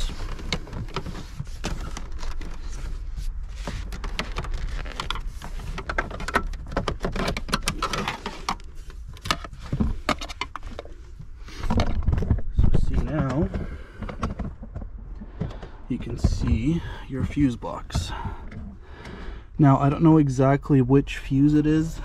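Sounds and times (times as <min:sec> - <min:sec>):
plastic cover being pried loose: 0:03.7 - 0:10.9.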